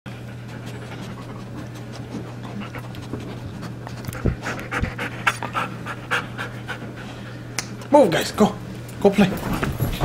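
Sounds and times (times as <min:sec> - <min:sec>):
dog panting: 0:00.1 - 0:07.3.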